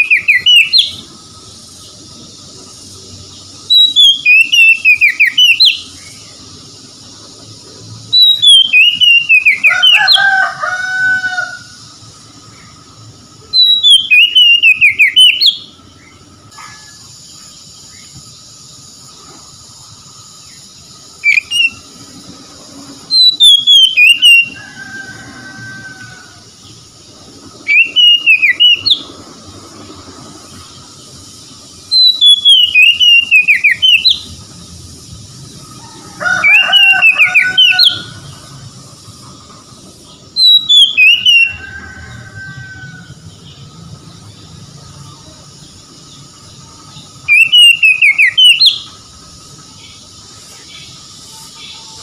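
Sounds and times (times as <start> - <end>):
bird singing whistles and chirps: 0.0 - 1.1, 2.0 - 6.4, 8.0 - 10.3, 13.4 - 18.1, 20.4 - 22.1, 22.8 - 25.8, 27.6 - 29.3, 30.5 - 34.5, 36.4 - 38.4, 40.3 - 43.6, 46.8 - 49.0.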